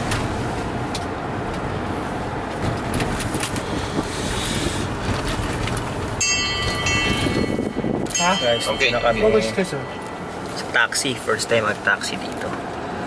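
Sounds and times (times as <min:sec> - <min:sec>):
car engine and road rumble: 0:00.0 - 0:13.0
steady multi-pitch ringing tone: 0:06.2 - 0:11.6.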